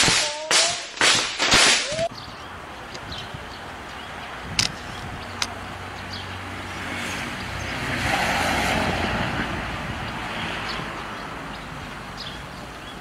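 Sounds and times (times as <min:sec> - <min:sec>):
road vehicle passing: 0:02.4 - 0:13.0.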